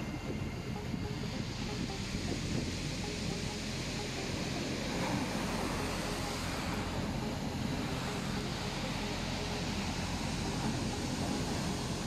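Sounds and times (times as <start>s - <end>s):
wind on microphone: 0.0s - 3.8s.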